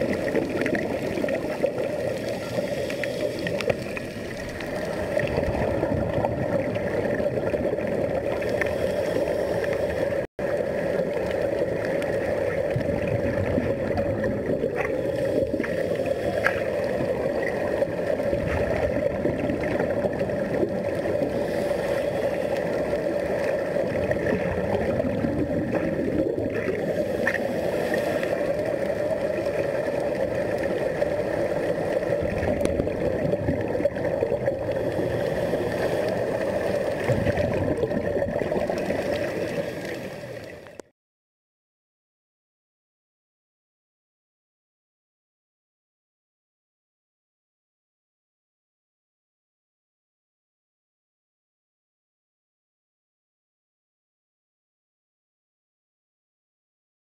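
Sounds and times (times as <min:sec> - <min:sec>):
droning hum underwater: 0:00.0 - 0:40.9
underwater air bubbling: 0:00.0 - 0:40.9.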